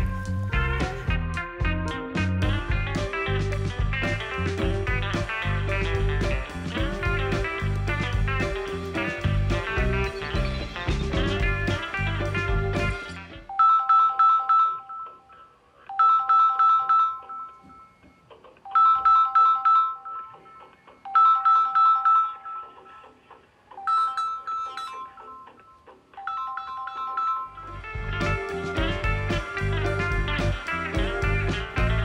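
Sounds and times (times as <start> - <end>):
phone ringtone: 8.4 - 32.0.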